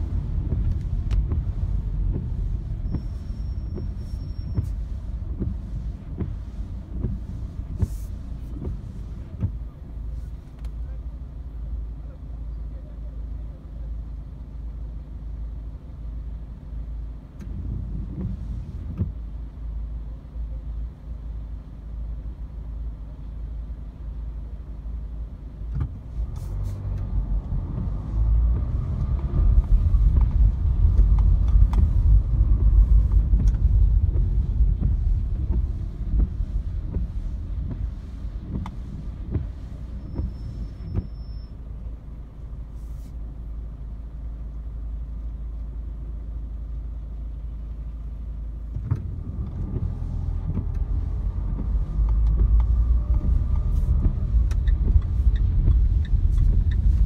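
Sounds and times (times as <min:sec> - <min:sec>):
wiper blades sweeping windscreen: 0:00.0 - 0:10.8, 0:17.2 - 0:19.8, 0:25.6 - 0:44.3, 0:47.2 - 0:57.0
car engine and road rumble: 0:00.0 - 0:57.0.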